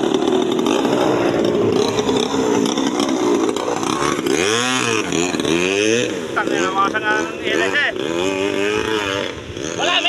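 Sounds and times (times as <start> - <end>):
two-stroke engine buzzing: 0.0 - 10.0.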